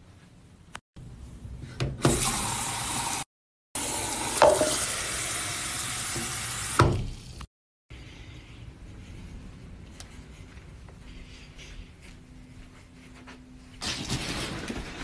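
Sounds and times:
faucet water running into cup: 0:03.8 - 0:06.8.

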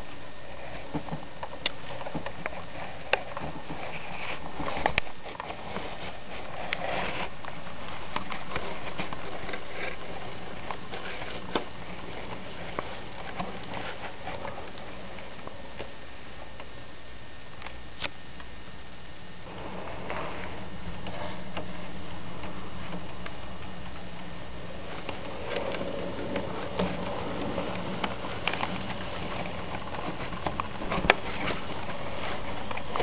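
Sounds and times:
model train motor hum and rumble: 0:19.5 - 0:33.0
wheels clicking over rail joints: 0:19.5 - 0:33.0.

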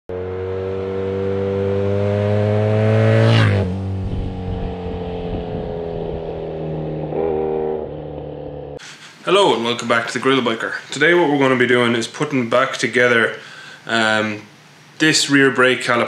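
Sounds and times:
motorcycle accelerating past: 0:00.1 - 0:08.8.

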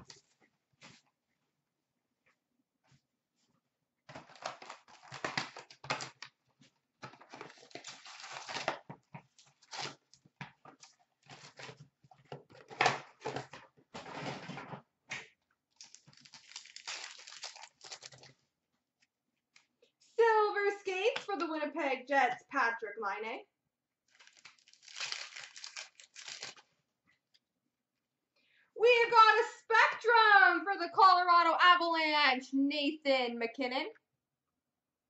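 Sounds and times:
plastic wrap crinkling and tearing: 0:04.1 - 0:06.3, 0:07.0 - 0:11.8, 0:15.7 - 0:18.4, 0:24.1 - 0:26.7.

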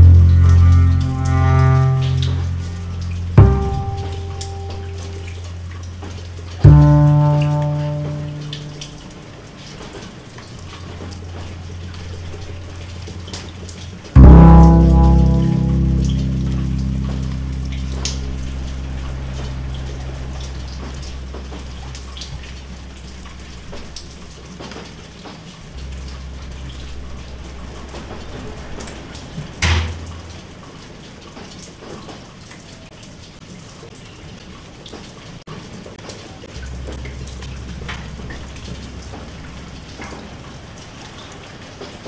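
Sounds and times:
low hum: 0:00.0 - 0:09.4, 0:10.5 - 0:24.4, 0:25.6 - 0:30.5, 0:36.5 - 0:40.9
water drops pattering: 0:00.0 - 0:33.2, 0:34.8 - 0:42.0.

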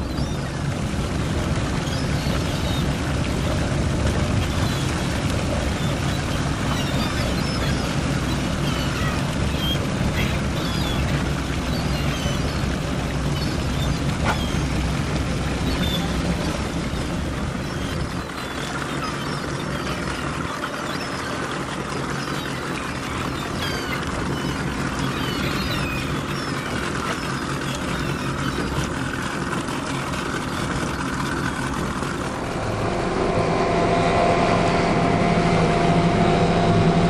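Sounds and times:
boat engine running: 0:00.0 - 0:37.0
water washing: 0:00.0 - 0:37.0
seagull calls: 0:04.4 - 0:32.4.

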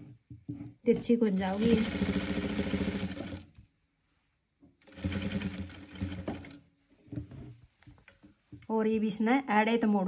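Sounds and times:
sewing machine stitching: 0:00.9 - 0:03.6, 0:04.8 - 0:06.6.

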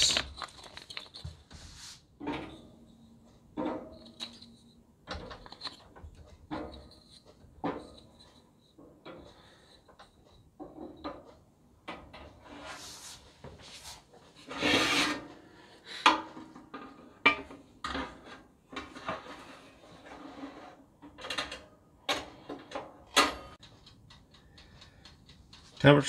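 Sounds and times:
metal rack scraping: 0:12.0 - 0:13.3, 0:14.3 - 0:15.6, 0:16.3 - 0:23.6.

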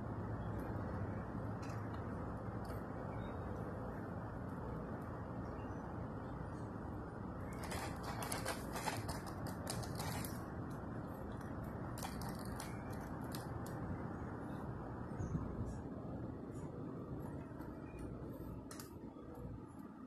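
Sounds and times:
toy truck wheels clattering: 0:07.5 - 0:10.5, 0:11.9 - 0:13.5.

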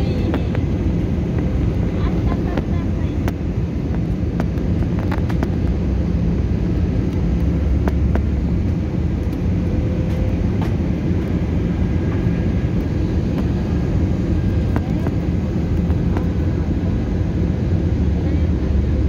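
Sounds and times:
airliner engine roar in cabin: 0:00.0 - 0:19.0.

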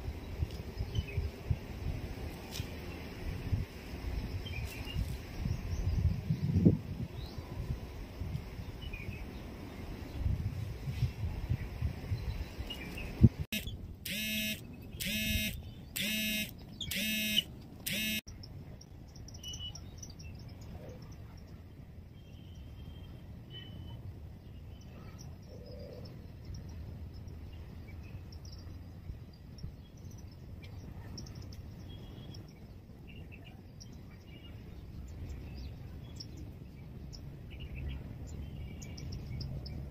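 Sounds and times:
low outdoor background: 0:00.0 - 0:39.9
loud beeps: 0:13.5 - 0:18.2
faint bird chirps: 0:13.6 - 0:39.9.

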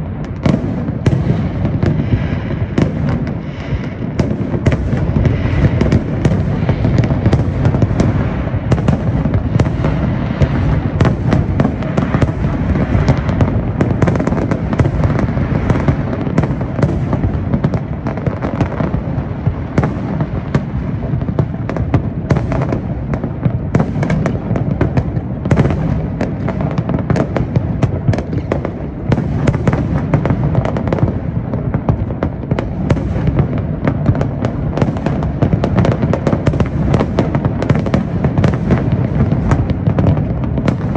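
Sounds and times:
fireworks exploding: 0:00.0 - 0:40.9.

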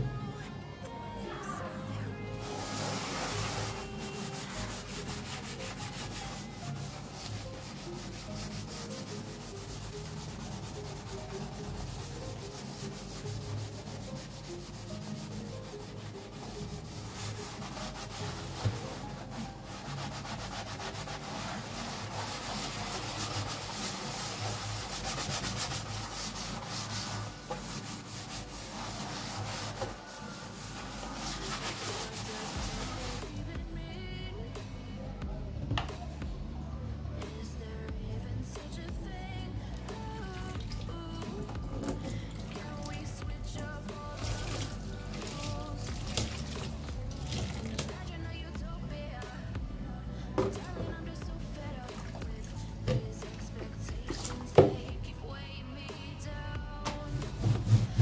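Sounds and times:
sponge scrubbing a sink: 0:02.4 - 0:33.4, 0:40.1 - 0:48.1, 0:56.8 - 0:58.0.

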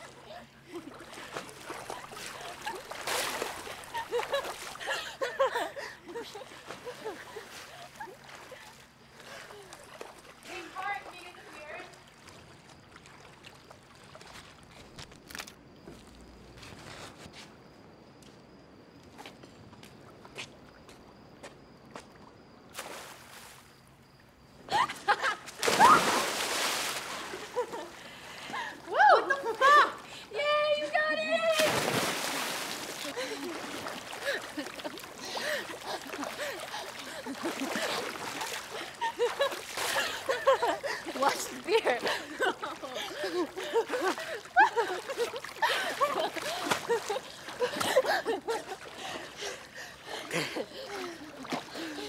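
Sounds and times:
girls laughing: 0:00.0 - 0:08.8, 0:24.7 - 0:26.3, 0:27.1 - 0:52.0
water splashing from swimming: 0:00.0 - 0:15.0, 0:25.1 - 0:30.2, 0:31.0 - 0:52.0.

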